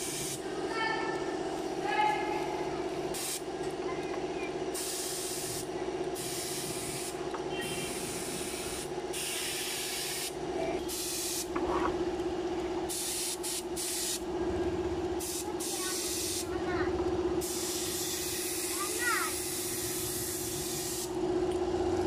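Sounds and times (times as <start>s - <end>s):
air spray gun hissing: 0.0s - 0.4s, 3.1s - 3.5s, 4.7s - 11.5s, 12.9s - 14.2s, 15.2s - 16.6s, 17.4s - 21.2s
steady hum: 0.0s - 22.0s.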